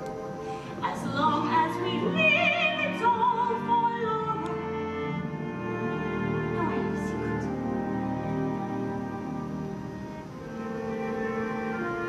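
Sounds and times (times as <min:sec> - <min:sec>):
orchestral accompaniment: 0:00.0 - 0:12.0
operatic singing with vibrato: 0:00.1 - 0:09.0.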